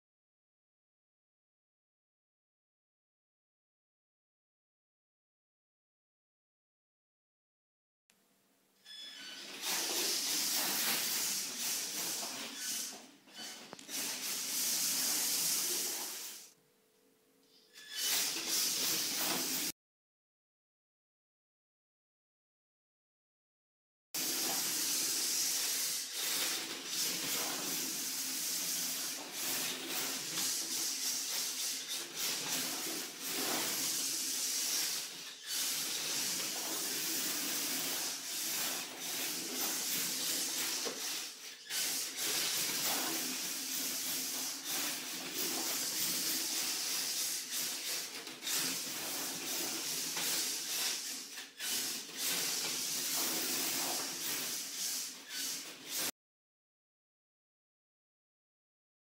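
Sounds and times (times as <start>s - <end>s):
tyres hissing over tiles: 8.9s - 16.6s, 17.7s - 19.8s, 24.2s - 56.1s.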